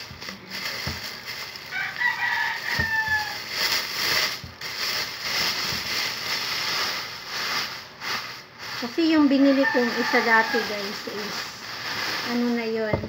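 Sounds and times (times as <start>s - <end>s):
plastic bag crinkling: 0.0s - 13.0s
rooster crowing: 1.7s - 3.5s, 9.4s - 11.4s.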